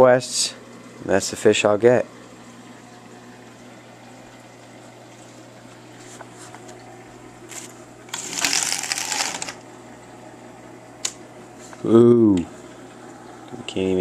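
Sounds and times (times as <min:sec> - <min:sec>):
steady low hum: 0:00.0 - 0:14.0
window blinds rattling: 0:08.2 - 0:09.6.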